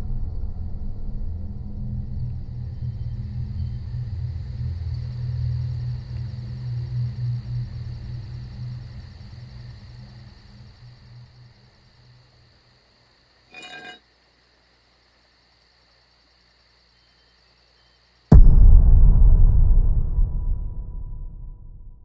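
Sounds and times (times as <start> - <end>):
low dark film score drone: 0.0 - 11.6
high chime-like ring: 13.5 - 14.0.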